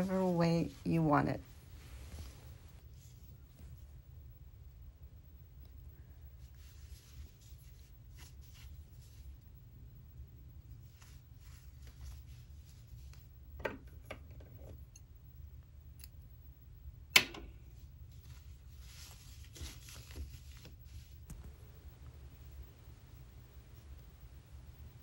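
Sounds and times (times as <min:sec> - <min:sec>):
soft rustles of thread and needle: 0:00.0 - 0:16.8, 0:17.4 - 0:25.0.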